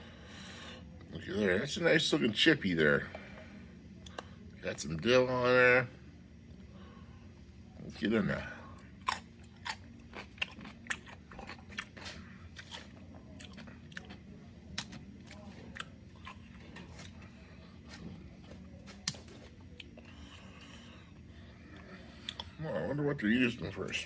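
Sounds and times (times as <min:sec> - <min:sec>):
person chewing crunchy chip: 0:08.9 - 0:21.1.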